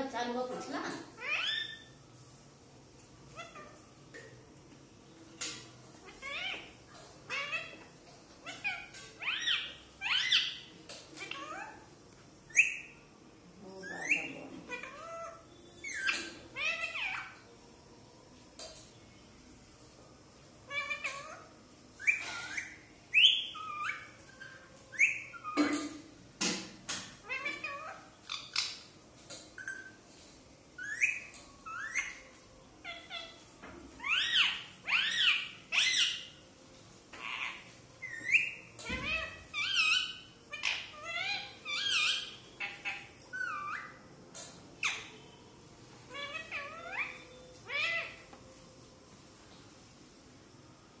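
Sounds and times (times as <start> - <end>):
harsh parakeet calls: 1.1 - 2.0, 3.3 - 3.8, 6.0 - 7.8, 8.4 - 11.9, 13.9 - 17.4, 30.8 - 33.4, 34.0 - 36.4, 37.1 - 44.0, 46.1 - 48.3
parakeet chirping calls: 1.1 - 2.0, 3.3 - 3.8, 6.0 - 11.9, 13.8 - 17.5, 20.7 - 25.6, 27.2 - 28.9, 30.8 - 33.4, 34.0 - 36.4, 37.1 - 44.0, 44.8 - 45.4, 46.1 - 48.3.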